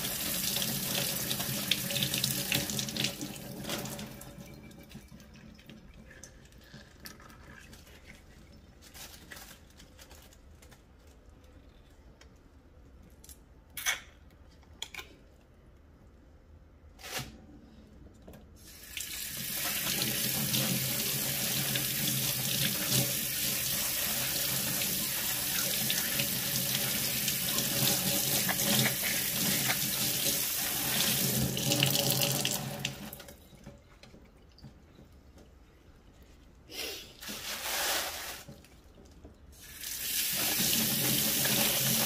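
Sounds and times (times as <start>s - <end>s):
hands being rinsed: 19.4s - 33.1s.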